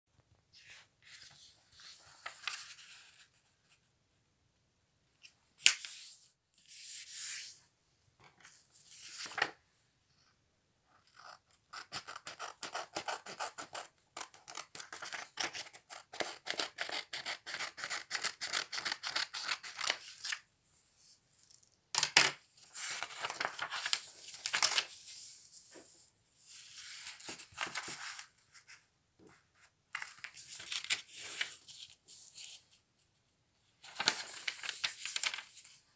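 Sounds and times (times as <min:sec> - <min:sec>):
paper rustling and creasing: 0:00.6 - 0:03.4, 0:08.4 - 0:09.6, 0:22.6 - 0:28.8, 0:29.9 - 0:32.7, 0:33.8 - 0:35.8.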